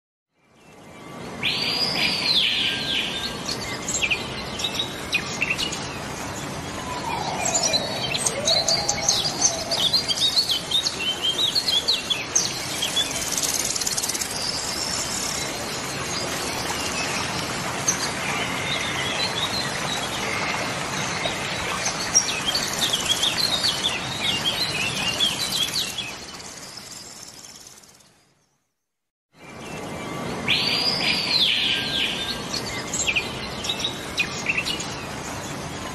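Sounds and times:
gulls calling: 0:06.2 - 0:10.4.

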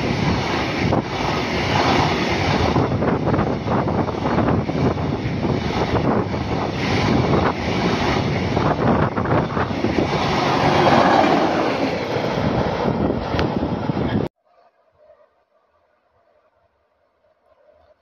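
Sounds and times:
freight train rumbling past: 0:00.0 - 0:14.3.

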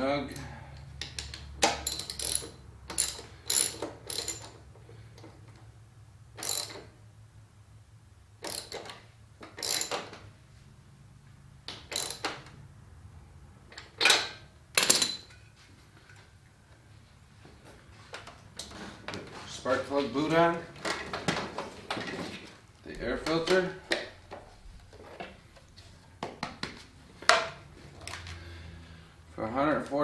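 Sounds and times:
socket ratchet clicking: 0:01.0 - 0:04.6, 0:06.4 - 0:06.9, 0:08.4 - 0:10.1, 0:11.7 - 0:12.5.

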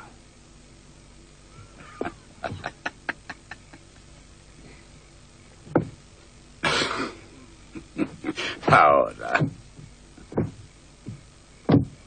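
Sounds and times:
heavy knock: 0:05.7 - 0:06.0, 0:09.4 - 0:12.0
sharp clicks and knocks: 0:05.7 - 0:06.0, 0:09.3 - 0:12.0.

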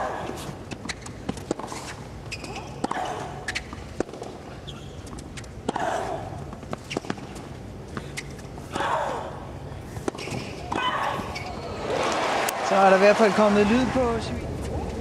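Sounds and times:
low stadium hum: 0:00.0 - 0:15.0
racket hitting tennis ball: 0:00.2 - 0:04.4, 0:05.0 - 0:11.5.

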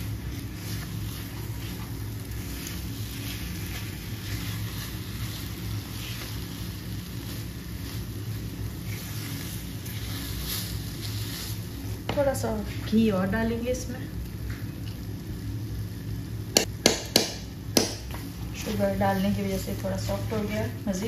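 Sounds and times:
spatula scraping a pan: 0:00.2 - 0:06.6, 0:08.8 - 0:11.7.

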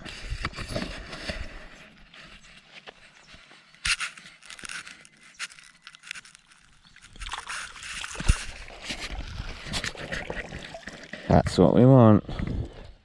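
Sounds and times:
water sloshing and splashing: 0:06.9 - 0:11.3.

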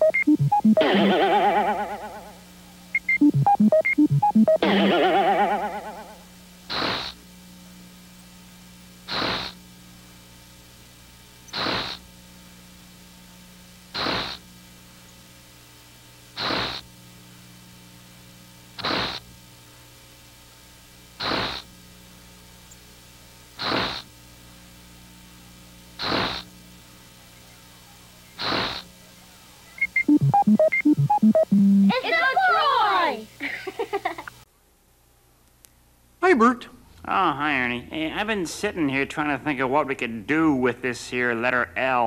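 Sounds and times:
steady low hum: 0:00.0 - 0:32.0.

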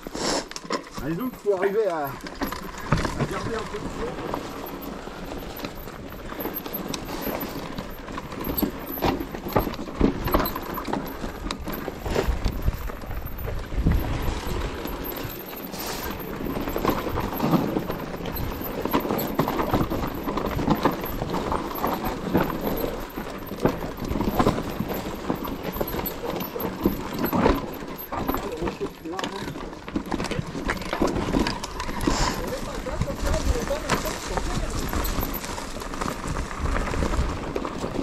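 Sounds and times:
bike rattling over rocks: 0:00.0 - 0:38.0.

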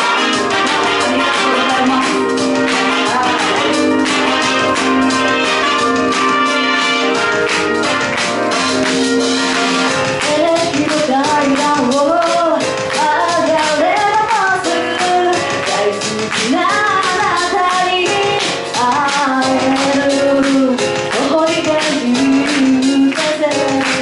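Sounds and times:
woman singing into microphone: 0:00.0 - 0:05.0, 0:10.2 - 0:24.0
pop accompaniment with steady beat: 0:00.0 - 0:24.0.

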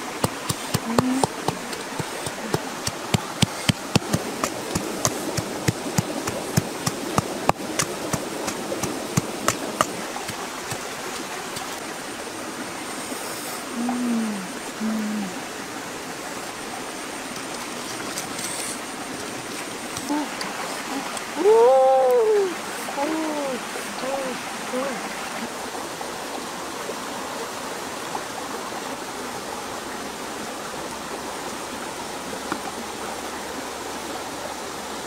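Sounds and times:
campfire crackling and popping: 0:00.0 - 0:11.8.

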